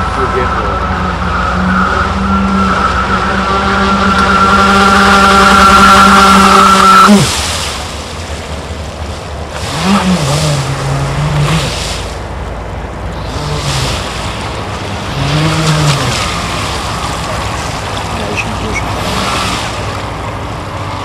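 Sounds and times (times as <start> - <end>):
electric boat motor whine: 0.0 - 7.6, 8.9 - 20.1
water hiss: 9.5 - 12.2, 13.2 - 20.1.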